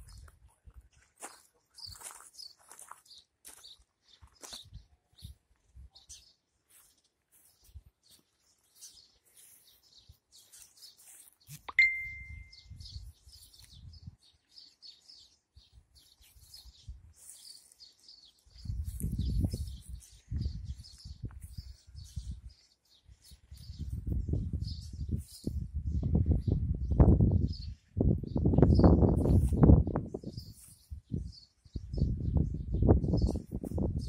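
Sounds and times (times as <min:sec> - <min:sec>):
small birds chirping: 0:00.0 - 0:34.0
sharp ding: 0:11.7 - 0:12.6.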